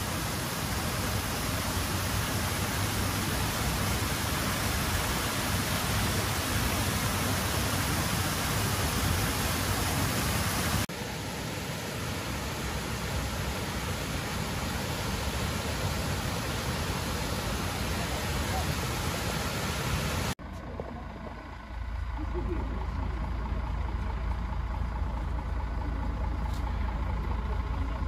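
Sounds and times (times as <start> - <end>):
steady rushing hiss: 0.0 - 20.4.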